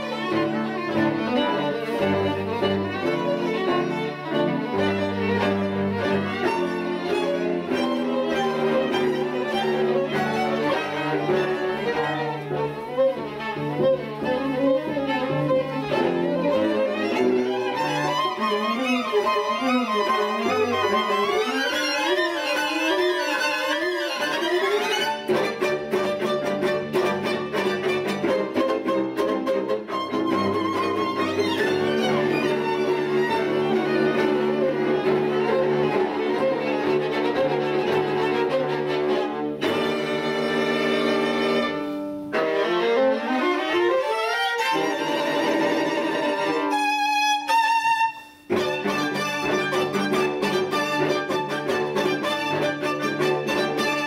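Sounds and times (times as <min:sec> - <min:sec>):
string quartet playing: 0:00.0 - 0:54.0.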